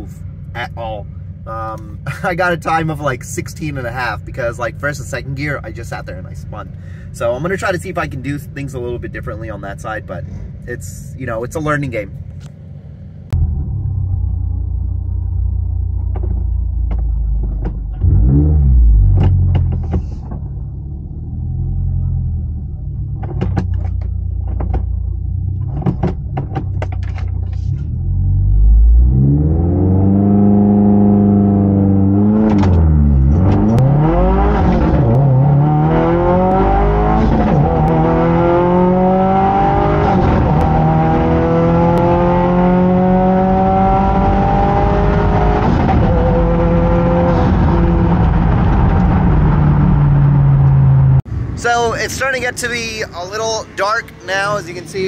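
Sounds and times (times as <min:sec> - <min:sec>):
car engine idling and revving: 0:00.0 - 0:55.0
car accelerating through gears: 0:18.0 - 0:19.7, 0:27.9 - 0:51.2.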